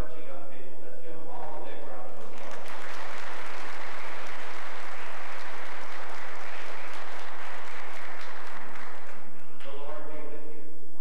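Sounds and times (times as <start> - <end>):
crowd applauding: 2.2 - 9.6.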